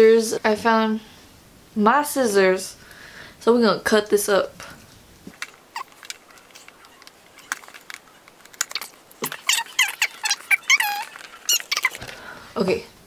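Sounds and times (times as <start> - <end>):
cardboard scraping and squeaking: 5.3 - 12.2
quick clicks: 5.3 - 12.3.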